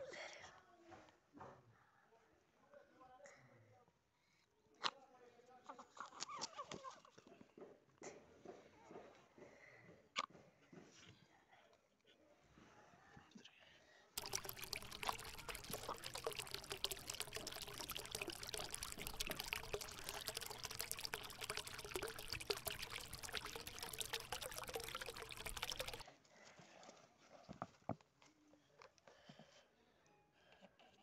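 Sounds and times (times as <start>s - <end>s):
faint small sounds: 4.2s - 31.0s
rushing water with crackles: 14.2s - 26.0s.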